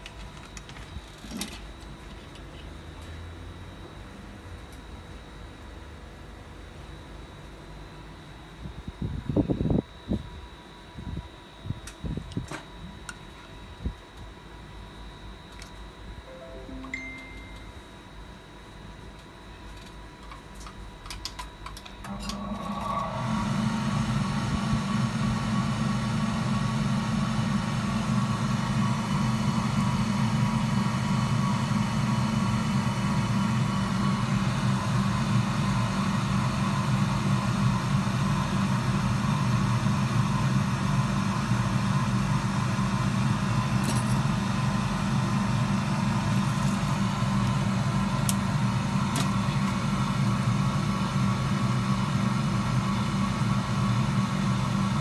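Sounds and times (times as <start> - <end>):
hot-air blower hum: 21.9 - 55.0.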